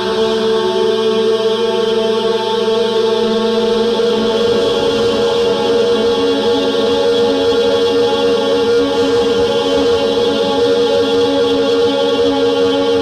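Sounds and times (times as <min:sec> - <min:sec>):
ambient synthesizer drone: 0:00.0 - 0:13.0.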